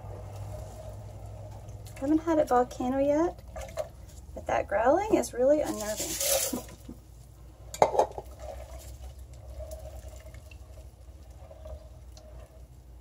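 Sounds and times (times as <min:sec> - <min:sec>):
hot solution growling: 0:07.6 - 0:13.0.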